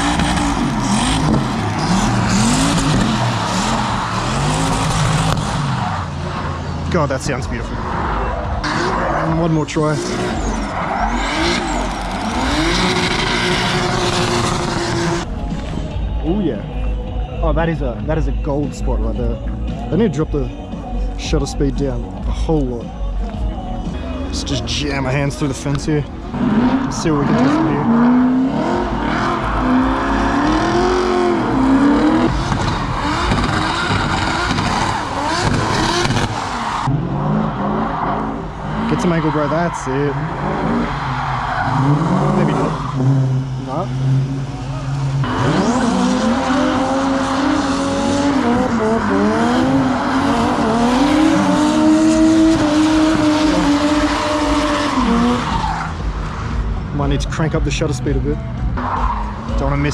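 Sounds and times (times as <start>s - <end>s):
car engine revving: 0.0s - 59.9s
tyres squealing: 7.8s - 15.2s.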